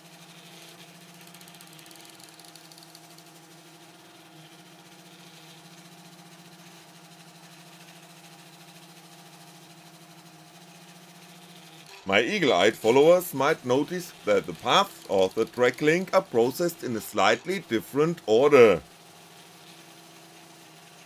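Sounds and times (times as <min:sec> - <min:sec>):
stepper motors humming: 0:12.1 - 0:18.8.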